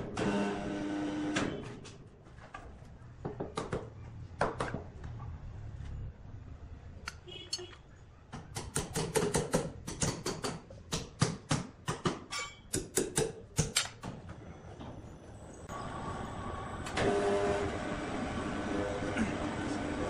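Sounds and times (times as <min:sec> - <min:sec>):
sawmill machinery humming: 0:15.7 - 0:20.0.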